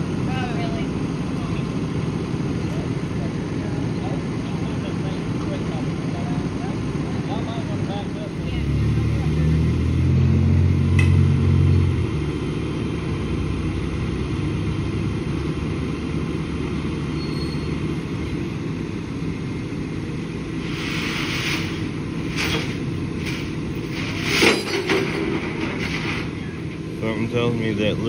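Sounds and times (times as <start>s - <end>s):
truck engine rumbling: 0.0s - 28.0s
short hissing bursts: 20.6s - 22.5s.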